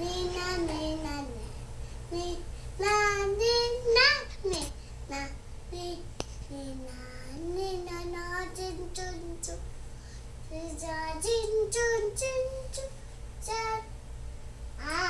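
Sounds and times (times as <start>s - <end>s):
toddler singing wordless notes: 0.0s - 1.5s, 2.1s - 9.6s, 14.8s - 15.0s.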